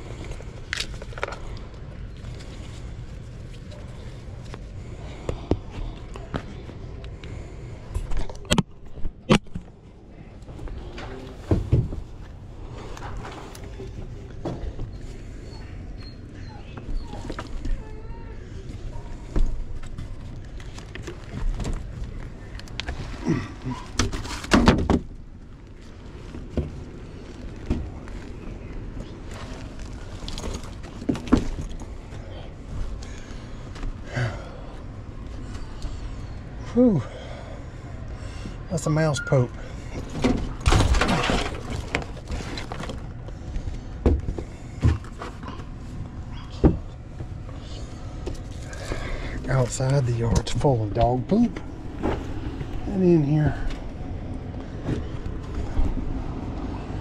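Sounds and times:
rustling: 10.4s - 34.0s.

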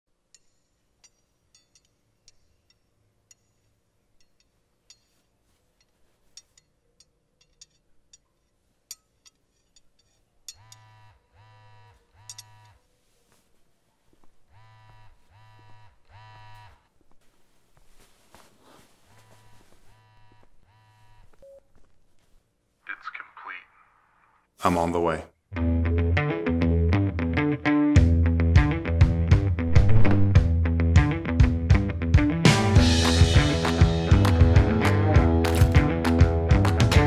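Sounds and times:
phone vibrating on wooden bench: 10.5s - 12.8s, 14.5s - 16.9s, 19.2s - 21.5s.

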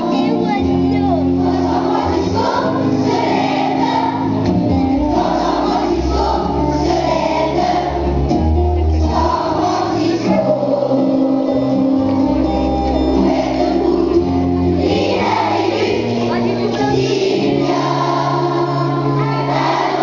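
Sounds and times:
children's choir singing: 0.0s - 20.0s.

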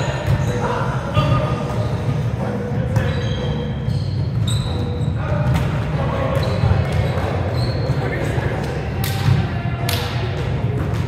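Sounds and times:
sneaker squeak on hardwood: 3.0s - 5.4s, 6.3s - 8.1s
volleyball hits echoing: 8.9s - 11.0s.

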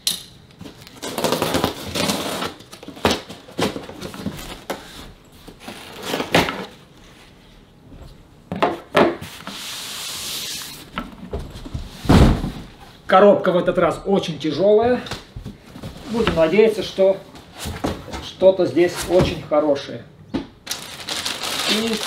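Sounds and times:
blade slicing packing tape: 1.0s - 2.6s.

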